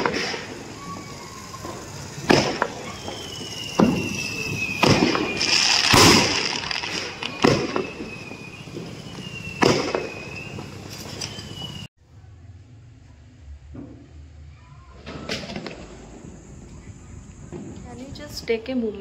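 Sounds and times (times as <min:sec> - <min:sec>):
fireworks crackling burst: 0:00.0 - 0:11.9
thin high falling whistle: 0:00.0 - 0:12.5
fireworks bangs: 0:00.0 - 0:12.6, 0:13.4 - 0:19.0.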